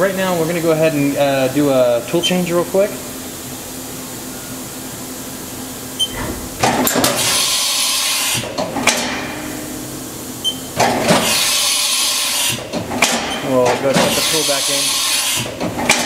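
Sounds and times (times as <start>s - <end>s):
low machine hum: 0.0s - 16.0s
machine clunks: 6.0s - 7.4s, 8.4s - 9.6s, 10.4s - 11.5s, 12.6s - 14.3s, 15.4s - 16.0s
compressed air hiss: 7.2s - 8.6s, 11.2s - 12.6s, 14.0s - 15.5s.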